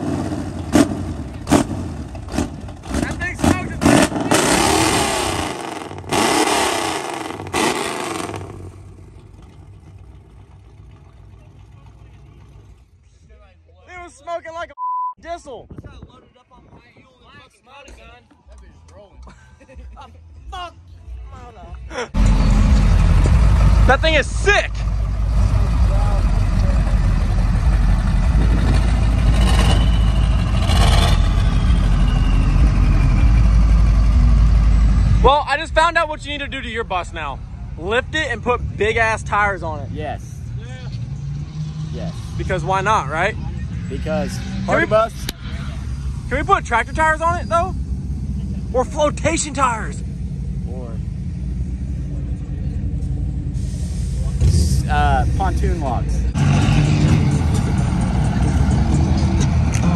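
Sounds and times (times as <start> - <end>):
truck engine revving: 0.0 - 13.0, 22.2 - 59.9
engine idling: 7.3 - 13.3
heavy vehicle engine idling: 8.3 - 13.4, 22.1 - 37.8.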